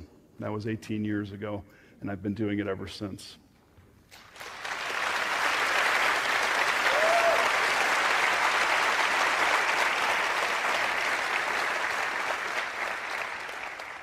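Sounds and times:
audience applauding: 0:04.2 - 0:14.0.

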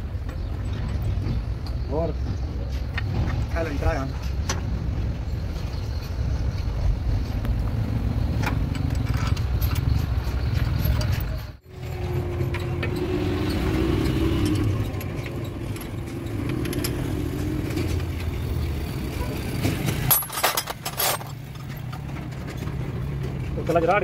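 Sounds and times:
engine running steadily: 0:07.2 - 0:23.9
metallic clinks of tools: 0:20.0 - 0:22.0.

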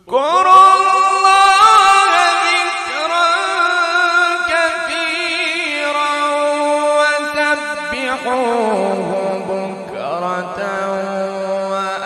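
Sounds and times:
man reciting melodically: 0:00.0 - 0:12.0.

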